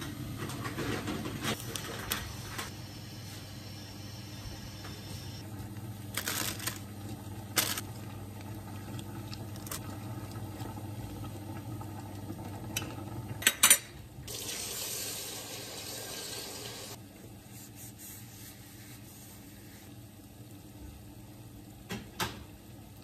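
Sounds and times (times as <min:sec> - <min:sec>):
tap water running into pot: 0:14.3 - 0:17.0.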